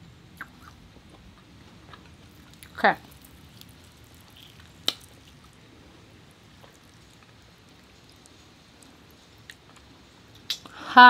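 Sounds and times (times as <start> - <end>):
hands pulling apart lobster meat: 2.0 - 5.6, 6.2 - 10.6.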